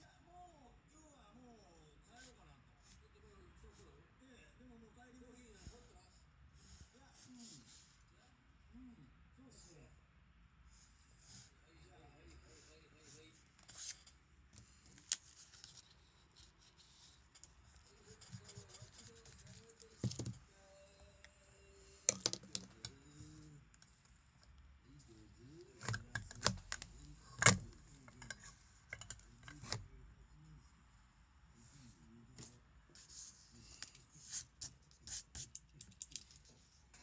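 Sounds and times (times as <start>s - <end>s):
paper rustling: 13.6s - 17.5s
taps and clicks on sketchbook: 22.1s - 23.0s.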